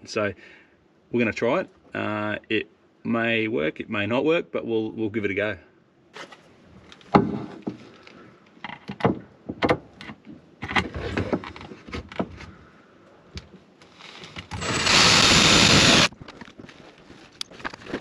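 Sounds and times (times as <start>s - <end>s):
cordless drill running: 14.6s - 16.1s.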